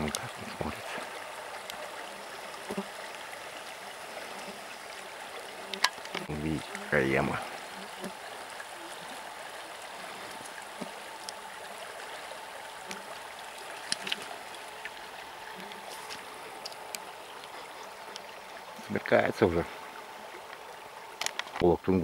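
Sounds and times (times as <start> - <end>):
river rushing over stones: 0.0 - 21.6
faint clicks: 5.7 - 6.8, 13.8 - 18.3, 21.2 - 21.6.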